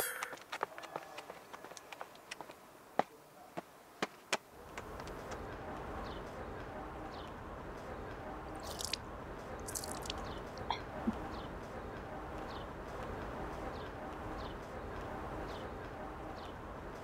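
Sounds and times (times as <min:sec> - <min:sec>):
outdoor background noise: 0:00.0 - 0:17.0.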